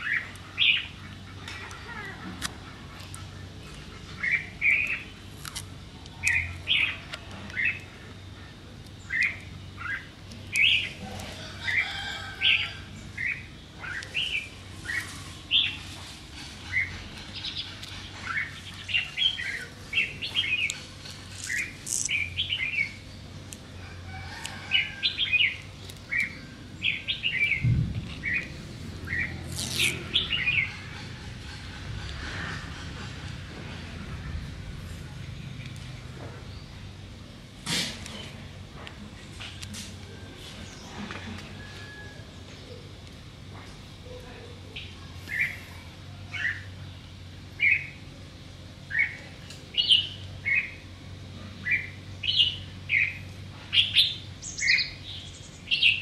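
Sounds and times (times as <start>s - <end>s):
small birds chirping: 0.0s - 37.2s, 42.4s - 56.0s
brief low rumble: 27.4s - 30.3s.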